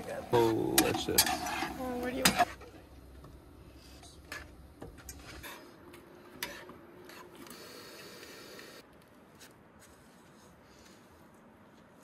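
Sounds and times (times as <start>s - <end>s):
metal spatula scraping frying pan: 0.8s - 2.6s.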